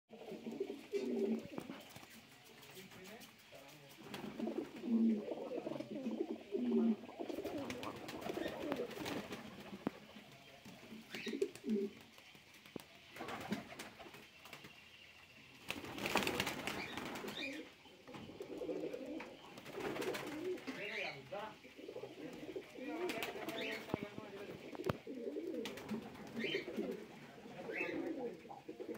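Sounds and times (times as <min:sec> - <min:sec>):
pigeons cooing: 0:00.1 - 0:02.0, 0:04.2 - 0:10.1, 0:10.9 - 0:12.2, 0:15.9 - 0:28.9.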